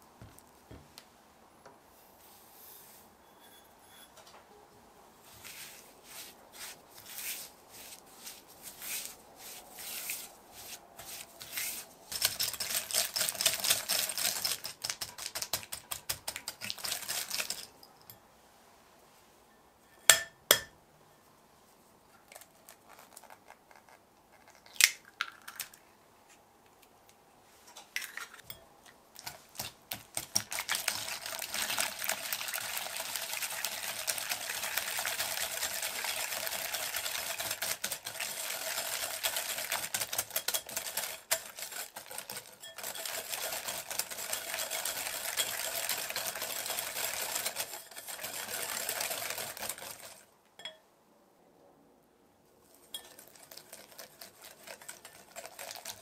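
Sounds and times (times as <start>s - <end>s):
beating ingredients in a bowl: 5.4s - 17.9s, 29.2s - 50.3s, 52.8s - 56.0s.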